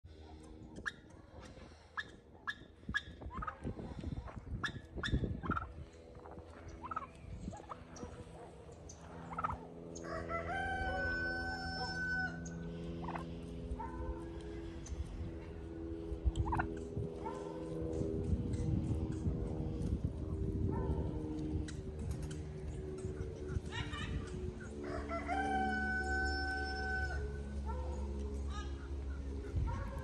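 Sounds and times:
low steady hum: 0.1s - 30.0s
turkeys calling: 0.7s - 15.1s, 16.3s - 16.9s, 21.7s - 30.0s.

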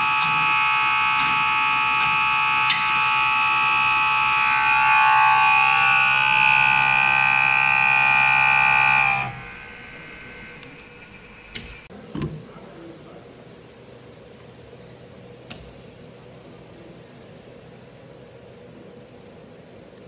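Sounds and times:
test bench whining: 0.0s - 11.9s.

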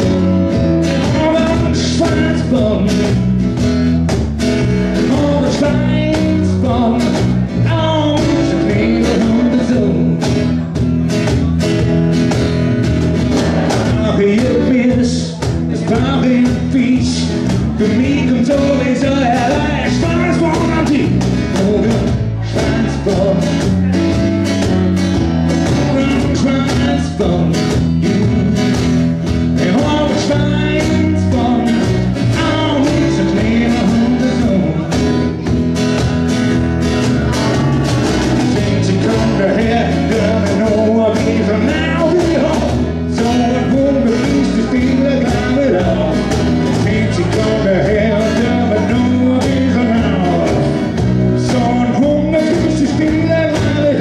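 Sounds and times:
cajon beat: 0.0s - 54.0s
electric bass: 0.0s - 54.0s
strummed acoustic guitars: 0.0s - 54.0s
lead vocal singing: 5.0s - 10.2s, 13.3s - 23.7s, 25.7s - 35.2s, 37.3s - 54.0s.

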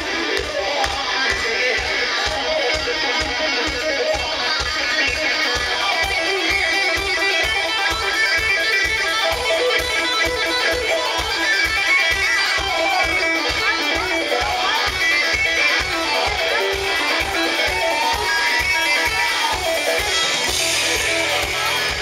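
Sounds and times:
electric guitar riff: 0.0s - 22.0s
live rock band playing: 0.0s - 22.0s.

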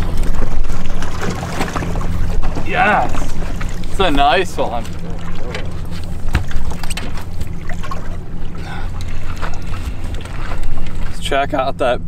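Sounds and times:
boat motor humming: 0.0s - 12.0s.

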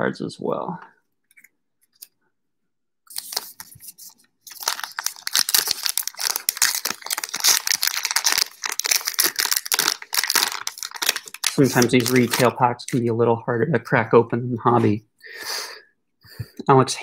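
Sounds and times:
card pack wrapper crinkling and tearing: 3.1s - 13.1s.

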